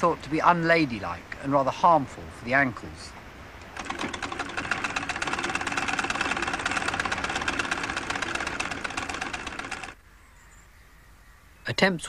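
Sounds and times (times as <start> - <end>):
sewing machine clattering: 3.7 - 10.0.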